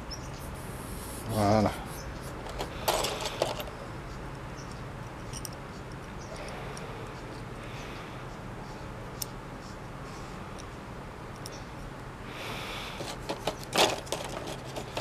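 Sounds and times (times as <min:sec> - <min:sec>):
metal tools clattering in tray: 0:02.5 - 0:03.7, 0:13.0 - 0:15.0.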